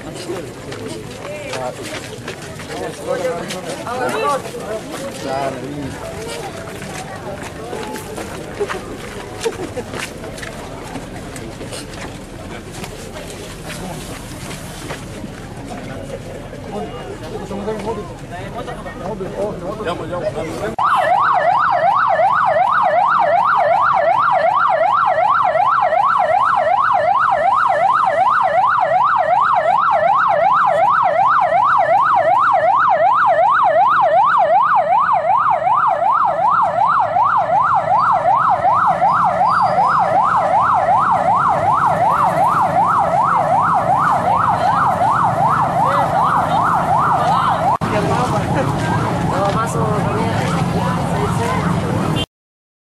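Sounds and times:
police siren yelp: 0:20.8 - 0:47.8.

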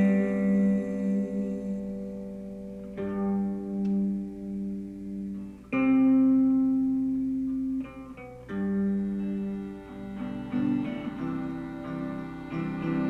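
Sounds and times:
ringing stringed instrument notes: 0:08.7 - 0:13.0.

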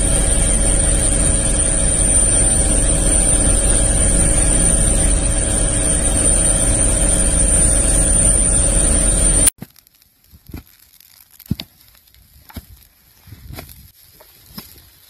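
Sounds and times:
helicopter engine and rotor drone: 0:00.0 - 0:09.5.

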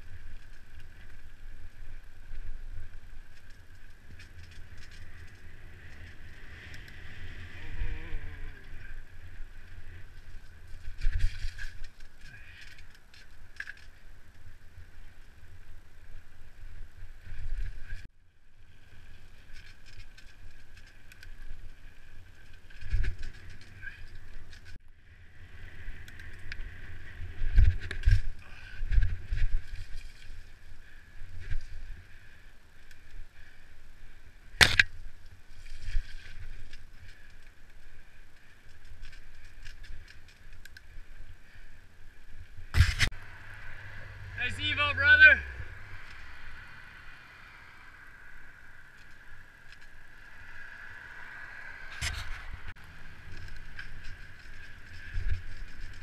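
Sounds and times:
bike thuds and rattles: 0:26.3 - 0:32.4, 0:42.6 - 0:43.1, 0:53.2 - 0:56.0.

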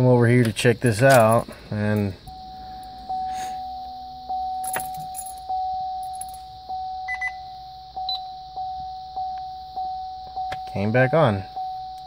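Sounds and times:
car warning chime dinging: 0:00.0 - 0:12.0
light clicks and jingles: 0:01.0 - 0:02.4.

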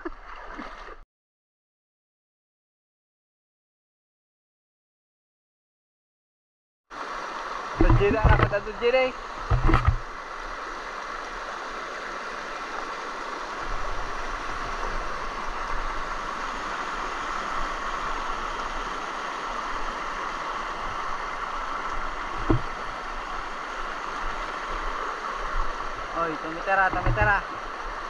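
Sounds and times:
river water over rocks: 0:00.0 - 0:01.0, 0:06.9 - 0:28.0
brief thump: 0:09.5 - 0:10.0.

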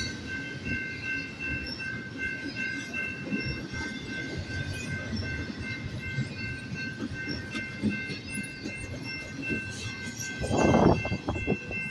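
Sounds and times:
freight train rumbling past: 0:00.0 - 0:11.9
high-pitched ringing tones: 0:00.0 - 0:11.9
train wheel clacks and knocks: 0:02.8 - 0:11.9.

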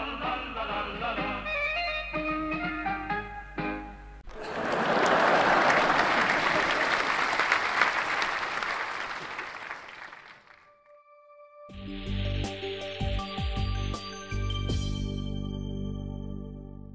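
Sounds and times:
music: 0:00.0 - 0:04.2, 0:10.7 - 0:16.9
audience applause: 0:04.2 - 0:10.6.

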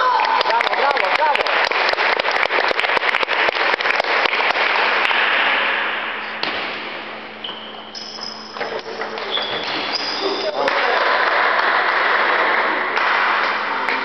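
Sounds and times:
applause echoing in a hall: 0:00.0 - 0:05.8, 0:10.7 - 0:14.0
table tennis ball hits: 0:06.4 - 0:11.0, 0:12.9 - 0:14.0.

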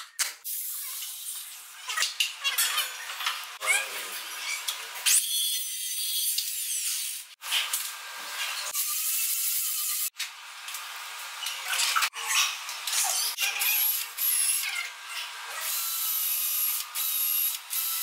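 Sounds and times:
hissy power tool: 0:15.6 - 0:18.0.

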